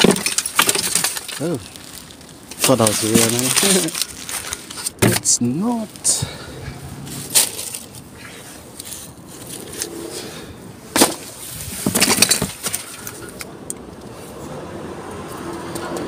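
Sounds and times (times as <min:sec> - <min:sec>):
rummaging through toys in plastic bin: 0:00.0 - 0:06.5, 0:07.1 - 0:09.6, 0:11.0 - 0:13.4.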